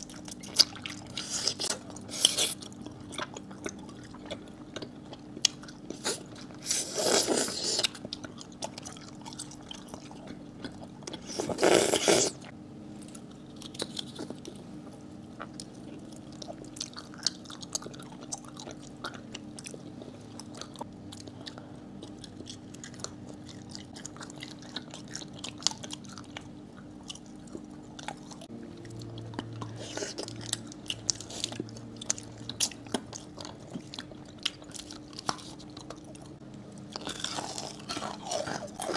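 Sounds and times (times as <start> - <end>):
chewing with crackles: 0.0 - 38.9
candy crunching: 13.0 - 38.9.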